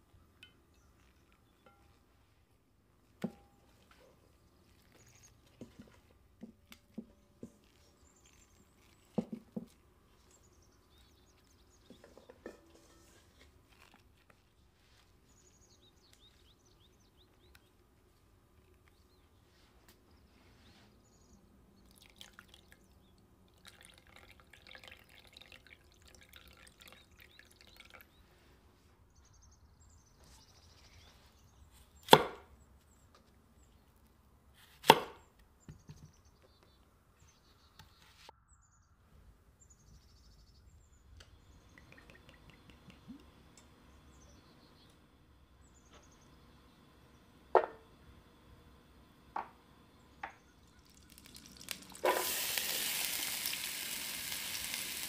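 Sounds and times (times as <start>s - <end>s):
water pouring into a dish: 23.5s - 28.1s, 50.8s - 55.0s.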